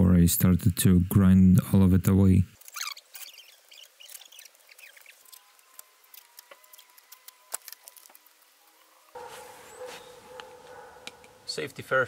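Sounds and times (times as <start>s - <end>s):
masking tape crackling: 2.5s - 11.7s.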